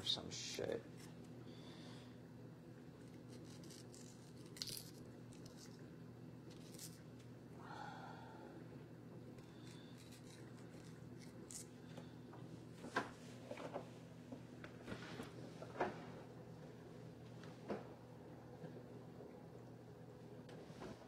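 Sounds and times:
low electrical hum: 0:00.0 - 0:21.0
vegetable peeler scraping potato: 0:03.2 - 0:04.3, 0:09.6 - 0:11.7.

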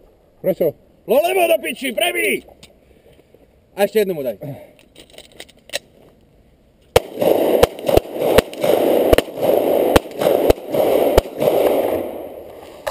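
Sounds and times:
pistol shots: 0:07.0 - 0:12.4.

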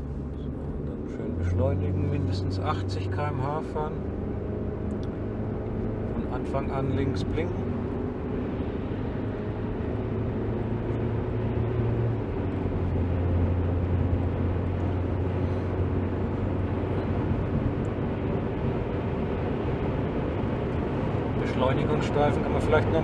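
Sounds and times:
car engine accelerating: 0:00.0 - 0:23.0
tyre road noise: 0:00.0 - 0:23.0.

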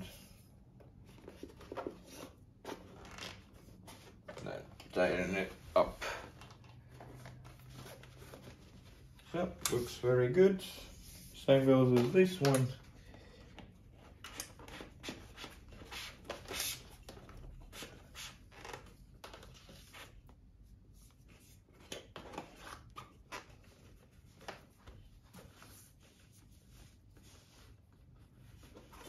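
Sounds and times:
rubber strap rustling and clicking: 0:13.5 - 0:20.2.

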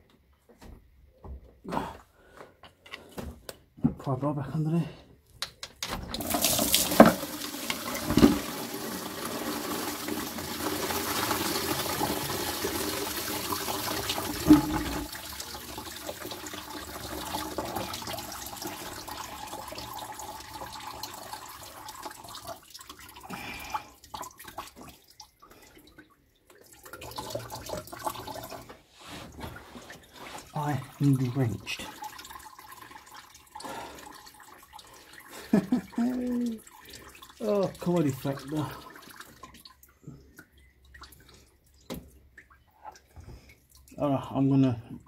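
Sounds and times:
coolant pouring into plastic bucket: 0:06.0 - 0:28.8, 0:29.4 - 0:43.9.

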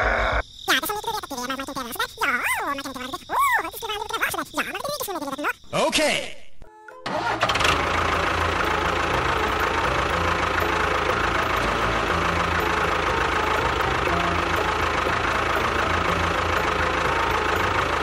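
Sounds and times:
tractor engine running: 0:07.0 - 0:18.0.

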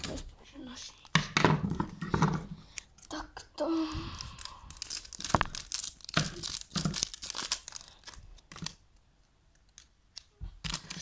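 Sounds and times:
foil packet crinkling: 0:04.2 - 0:08.8.

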